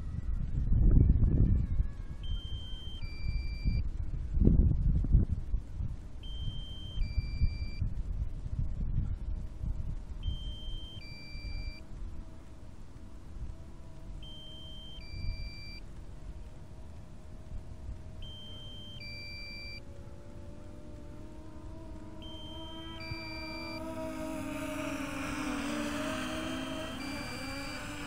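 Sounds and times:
faint steady hum: 0.0s - 28.0s
wind rumble on microphone: 0.0s - 28.0s
two-tone electronic warning beep: 2.2s - 3.8s, 6.2s - 7.8s, 10.2s - 11.8s, 14.2s - 15.8s, 18.2s - 19.8s, 22.2s - 24.1s, 26.3s - 28.0s.

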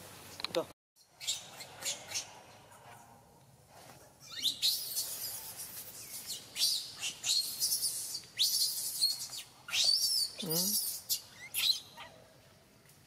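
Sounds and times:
baby monkey screaming: 4.3s - 12.1s.

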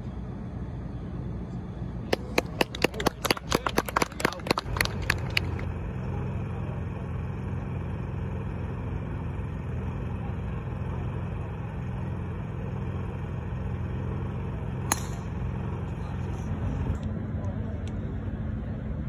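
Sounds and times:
low background rumble: 0.0s - 19.0s
golf club hitting ball: 14.7s - 15.7s.

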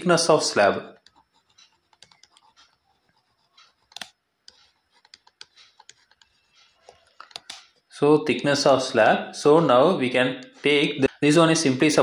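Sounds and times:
stylus tapping on a tablet: 1.0s - 7.9s.

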